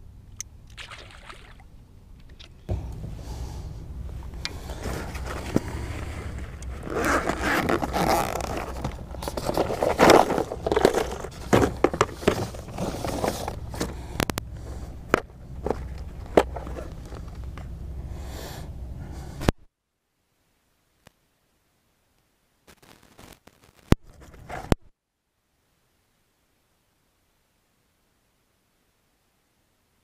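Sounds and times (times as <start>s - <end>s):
steady low rumble: 0.0s - 19.6s
fabric and plastic rustling: 4.6s - 14.0s
bag unzipping: 4.7s - 11.8s.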